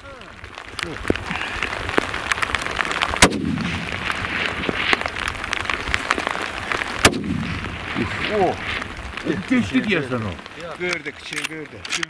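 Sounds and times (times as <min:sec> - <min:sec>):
rifle shot echoing: 0:03.2 - 0:04.0, 0:07.0 - 0:07.8.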